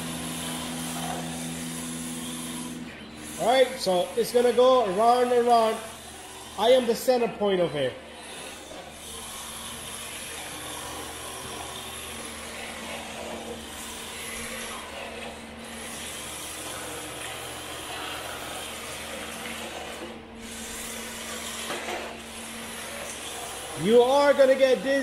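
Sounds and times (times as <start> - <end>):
rc car drivetrain hum: 0.0 - 25.0
rc car tyres scrubbing on concrete: 6.6 - 25.0.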